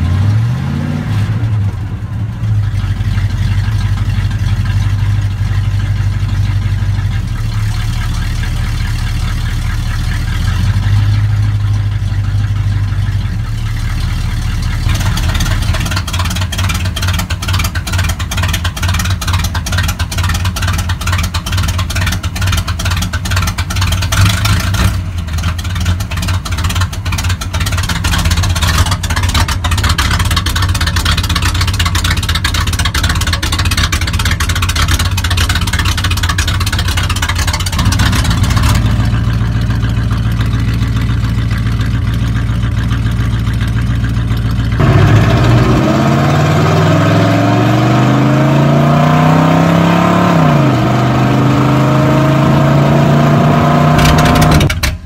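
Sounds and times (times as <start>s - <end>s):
pickup engine idling: 1.5s - 55.0s.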